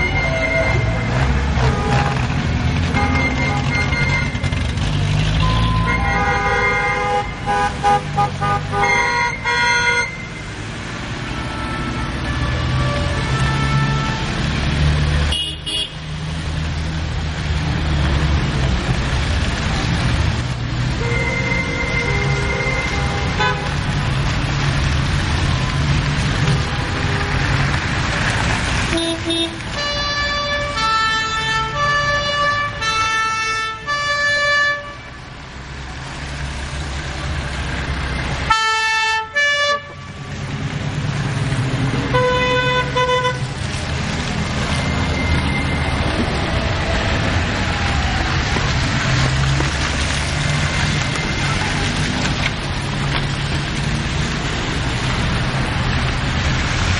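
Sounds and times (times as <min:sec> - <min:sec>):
car horns honking: 0:00.0 - 0:04.6, 0:05.4 - 0:10.4, 0:15.3 - 0:16.0, 0:21.0 - 0:23.8, 0:28.9 - 0:35.0, 0:38.5 - 0:40.2, 0:42.0 - 0:43.4
cars driving past: 0:00.0 - 0:56.9
tyre noise on road: 0:00.0 - 0:56.9.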